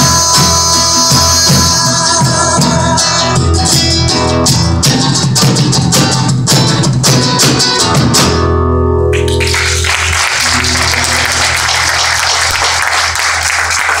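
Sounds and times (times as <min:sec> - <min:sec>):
drum beating rhythm: 0:00.0 - 0:08.4
acoustic guitar strumming: 0:00.0 - 0:12.8
audience applause: 0:09.2 - 0:14.0.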